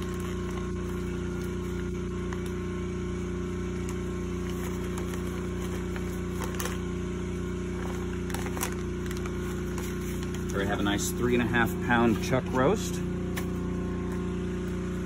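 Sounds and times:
paper crinkling: 0.0 - 2.6, 3.8 - 6.9, 7.7 - 10.9
low mechanical hum: 0.0 - 15.0.

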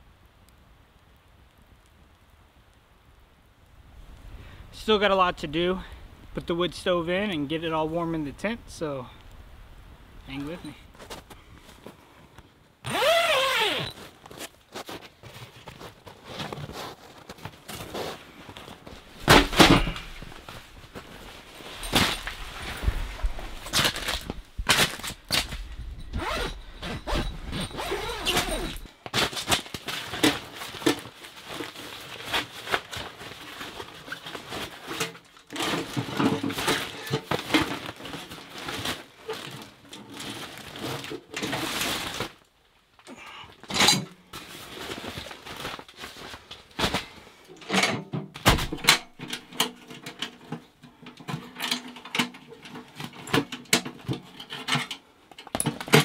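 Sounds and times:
nylon bag rustling: 12.8 - 43.4, 44.2 - 47.4
metal clinks and knocks: 25.6 - 28.9.

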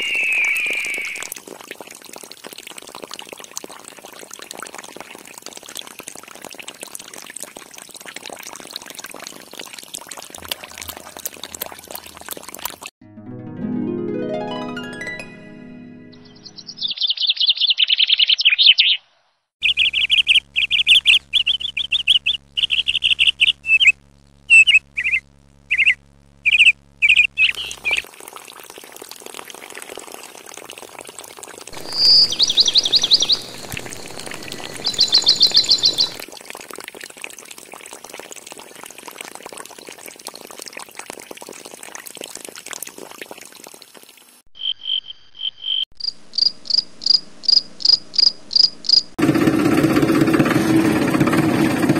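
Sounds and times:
birds chirping: 16.1 - 19.0, 19.6 - 28.0, 31.8 - 36.2
buzzy insect trills: 19.7 - 28.0, 31.8 - 36.2
cricket chirping: 31.8 - 36.2, 44.6 - 49.2.

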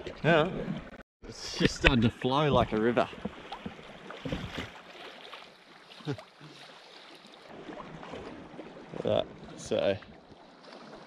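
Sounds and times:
water splashing against kayak hull: 1.6 - 11.0
small water slaps: 1.8 - 11.0.

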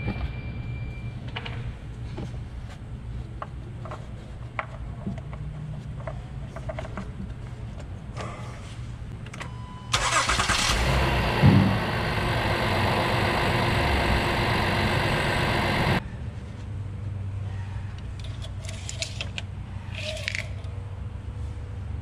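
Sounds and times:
car engine running: 10.0 - 16.0
starter cranking: 10.0 - 16.0.

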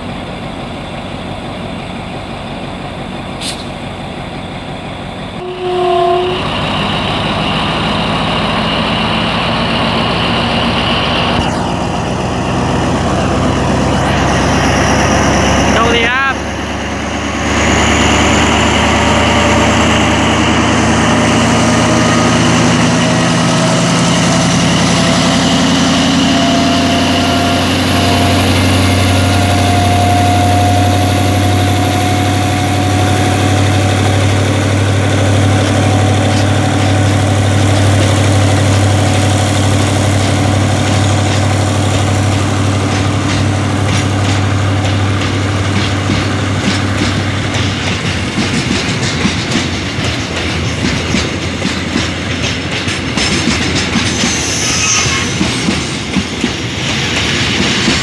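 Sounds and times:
diesel locomotive engine hum: 0.0 - 58.0
wheels clicking over rail joints: 40.1 - 54.6.

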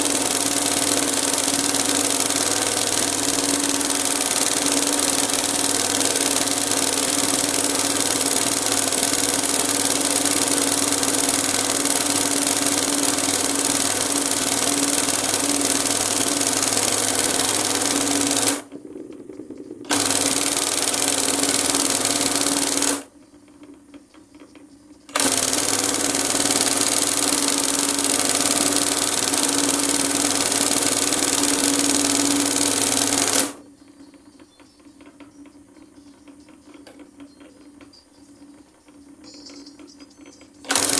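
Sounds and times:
embroidery machine stitching: 0.0 - 18.7, 19.9 - 23.1, 25.1 - 33.6, 40.6 - 40.9.

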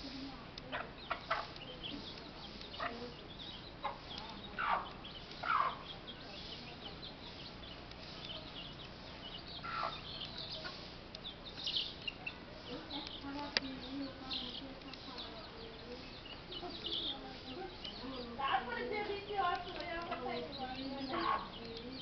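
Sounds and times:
chickens clucking: 0.0 - 22.0
faint high chirps: 1.0 - 22.0.

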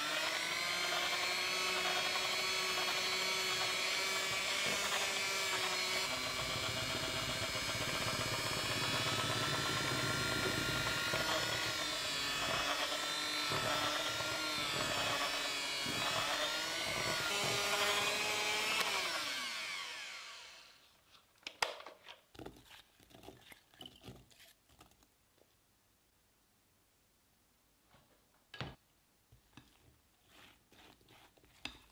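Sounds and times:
electric hand mixer whining: 0.0 - 20.8.

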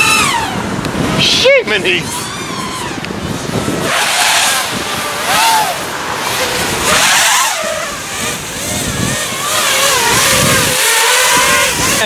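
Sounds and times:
quadcopter motors whining: 0.0 - 12.0.

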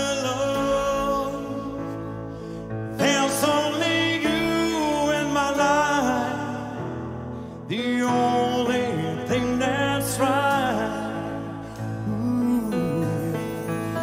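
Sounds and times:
man singing ballad: 0.0 - 14.0.

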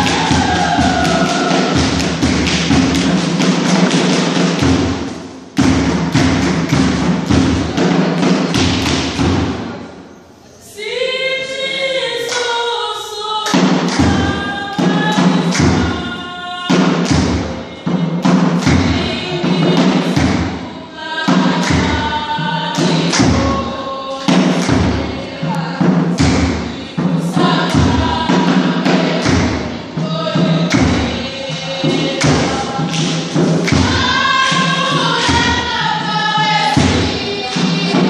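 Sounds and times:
group of voices singing: 0.0 - 4.6, 10.6 - 38.0
heavy fast drum beats: 0.0 - 9.8, 13.5 - 38.0.

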